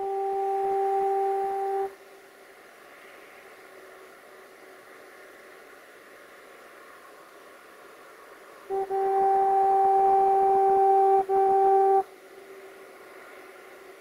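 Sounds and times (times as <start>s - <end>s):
train horn blasts: 0.0s - 2.0s, 8.7s - 12.2s
faint steady hiss: 0.0s - 14.0s.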